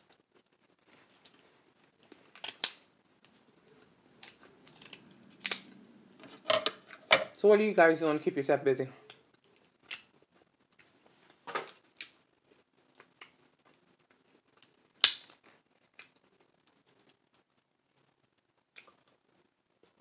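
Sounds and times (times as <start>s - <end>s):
lobster shell cracking: 2.3s - 2.8s, 4.2s - 5.7s.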